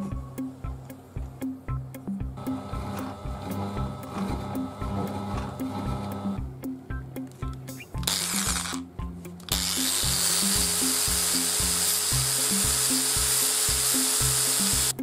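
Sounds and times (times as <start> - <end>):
belt sander grinding steel: 2.4 - 6.3, 8.0 - 8.8, 9.5 - 15.0.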